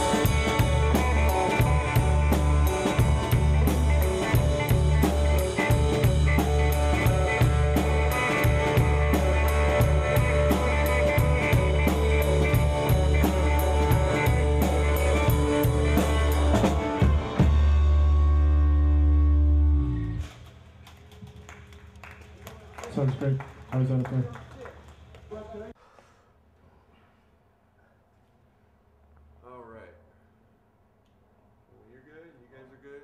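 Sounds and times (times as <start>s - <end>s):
rock band playing: 0.0s - 20.4s
drum kit beating: 0.0s - 20.5s.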